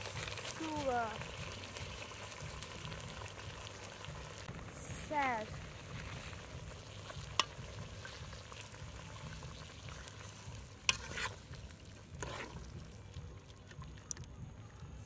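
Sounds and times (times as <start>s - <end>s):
metal ladle stirring curry: 5.7s - 13.7s.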